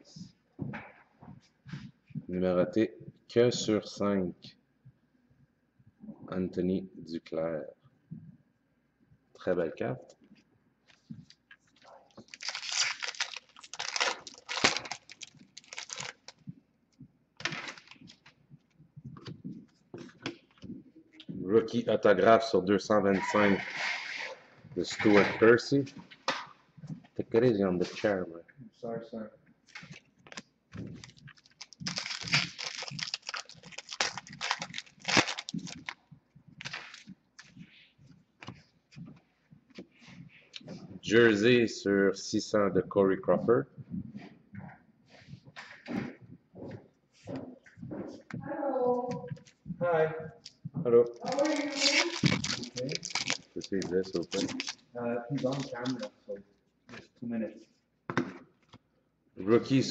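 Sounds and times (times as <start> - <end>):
foil wrapper crinkling: 12.1 - 16.4, 17.4 - 18.3, 29.7 - 36.0, 36.6 - 37.1, 51.2 - 56.1
cards being shuffled: 29.7 - 36.0, 51.2 - 54.8, 55.4 - 56.1.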